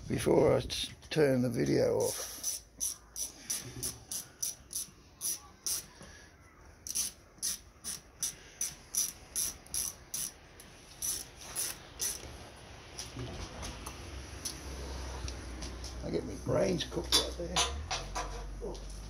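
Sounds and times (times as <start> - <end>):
ratchet wrench clicking: 2.4 - 5.8, 6.8 - 10.4, 11.0 - 12.2.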